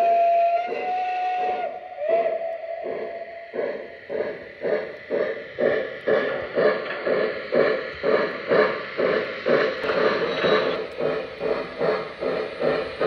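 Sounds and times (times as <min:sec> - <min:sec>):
model steam locomotive chuffing: 0:00.0 - 0:13.0.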